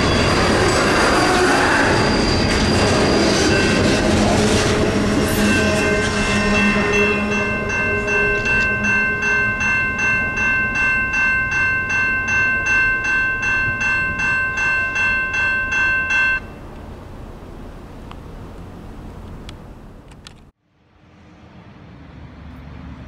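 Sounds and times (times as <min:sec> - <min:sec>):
train rumble: 0:00.0 - 0:23.0
railroad crossing bell ringing: 0:01.9 - 0:16.8.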